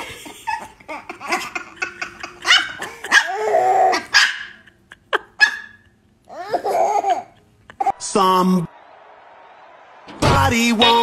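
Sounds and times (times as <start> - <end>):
small dog barking: 2.5 - 4.6.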